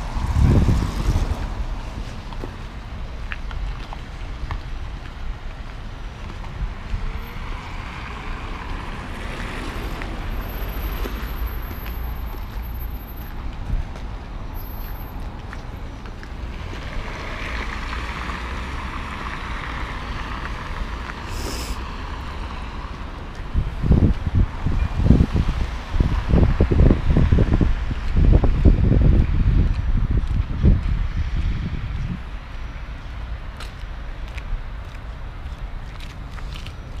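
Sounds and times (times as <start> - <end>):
wind rumble on microphone: 0.0 - 11.9, 12.5 - 18.1, 22.2 - 37.0
car tyres hissing on wet road: 20.7 - 22.2.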